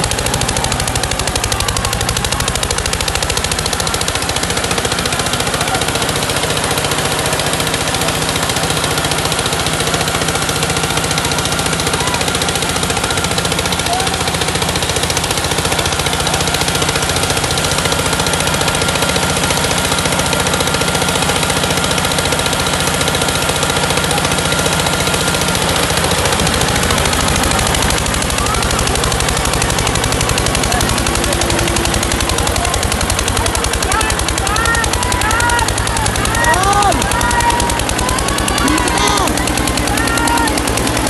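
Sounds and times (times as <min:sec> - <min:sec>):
tractor engines under heavy load: 0:00.0 - 0:41.0.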